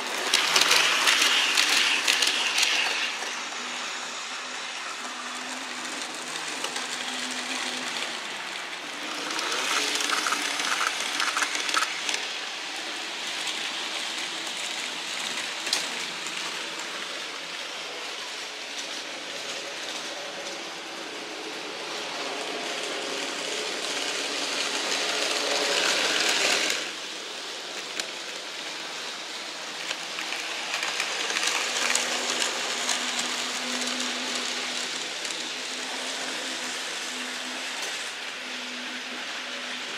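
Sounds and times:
small wheels rattling on rail: 4.9s - 17.0s.

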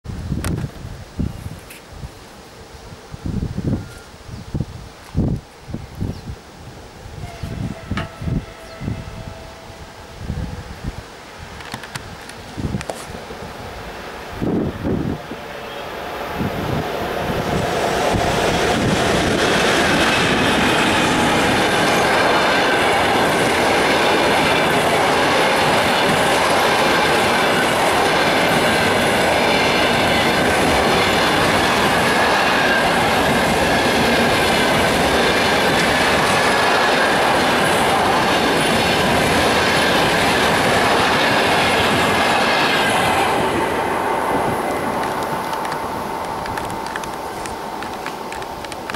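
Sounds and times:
faint high ringing tones: 7.2s - 10.6s
train wheels rushing on rails: 7.2s - 48.9s.

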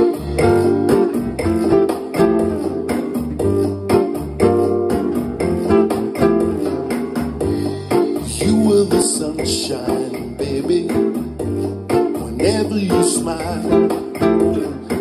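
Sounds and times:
acoustic guitar strumming chords: 0.0s - 15.0s.

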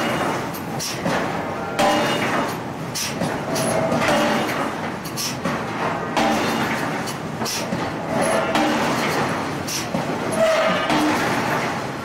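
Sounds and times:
forging hammer striking metal: 1.8s - 2.5s, 4.0s - 4.6s, 6.2s - 6.8s, 8.3s - 9.2s, 10.7s - 11.5s.

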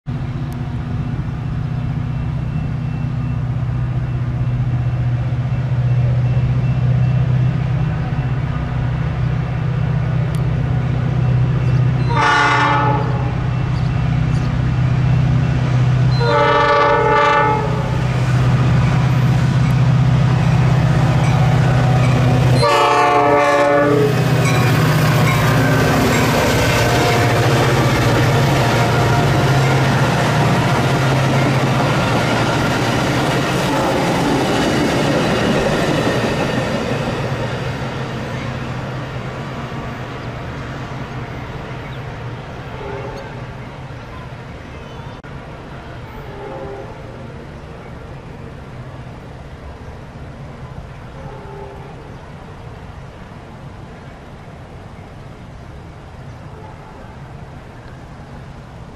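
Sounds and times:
train wheels on rails: 0.1s - 56.6s
diesel locomotive engine rumble: 0.1s - 58.9s
train horn blasts: 12.0s - 13.7s, 16.1s - 18.3s, 21.4s - 30.8s, 33.6s - 34.6s, 42.6s - 43.5s, 46.0s - 47.2s, 51.2s - 52.0s.

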